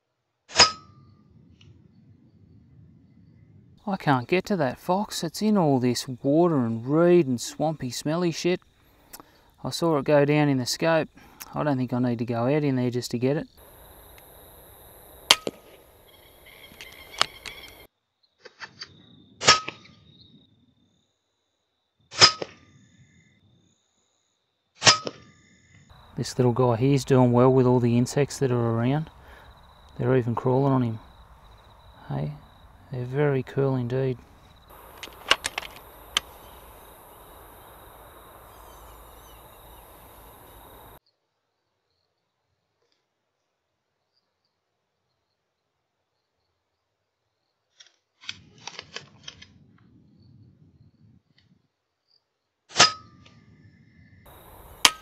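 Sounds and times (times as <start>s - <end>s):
outdoor night background: 0.0s - 55.0s
air rifle shots: 15.2s - 15.9s, 34.7s - 36.8s
faint high chirping: 15.8s - 19.3s, 35.7s - 41.1s
sharp clicks: 34.7s - 41.0s.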